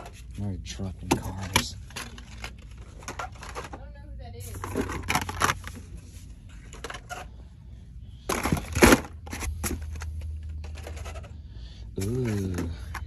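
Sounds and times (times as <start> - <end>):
steady low hum: 0.0 - 13.0
plastic clicks and rustles: 1.0 - 3.8, 4.6 - 5.9
toy cars clattering: 1.0 - 5.9, 8.2 - 13.0.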